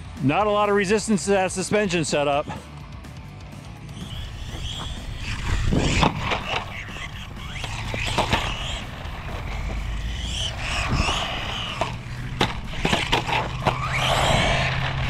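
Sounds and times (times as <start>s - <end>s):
electric motor whine: 3.7s - 15.0s
tyres rolling on concrete: 4.0s - 15.0s.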